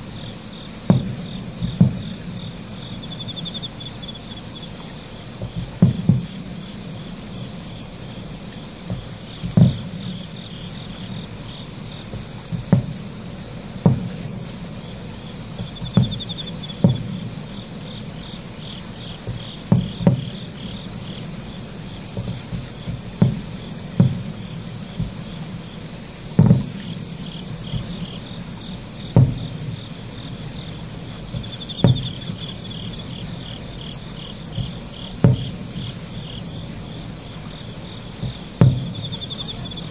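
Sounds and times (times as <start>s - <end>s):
distant firework booms: 0.0s - 39.9s
insects trilling: 0.0s - 39.9s.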